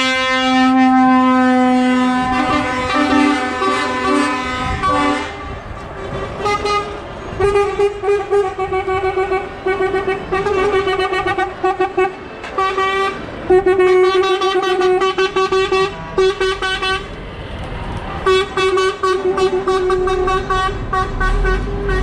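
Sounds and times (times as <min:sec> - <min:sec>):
truck horns tooting: 0:00.0 - 0:17.2, 0:18.1 - 0:22.0
diesel engines running: 0:00.0 - 0:22.0.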